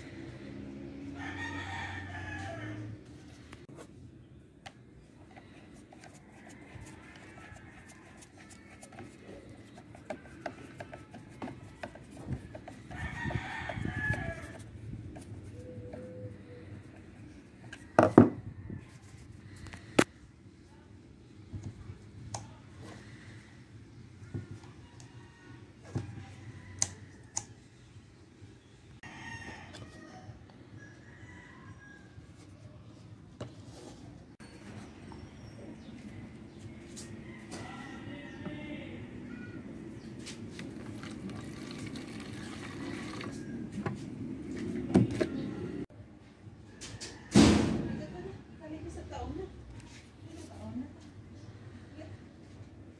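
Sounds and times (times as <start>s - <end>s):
rooster crowing: 0.0s - 3.2s, 10.8s - 14.7s, 29.0s - 32.4s, 36.5s - 39.5s.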